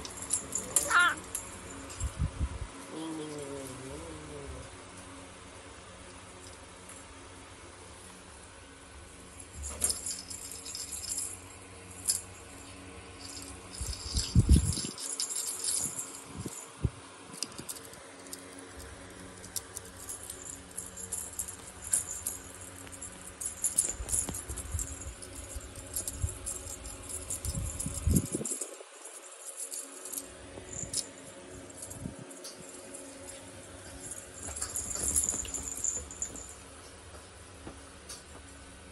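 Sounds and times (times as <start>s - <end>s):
toy jingling and rattling: 0.0s - 2.3s, 9.3s - 36.6s.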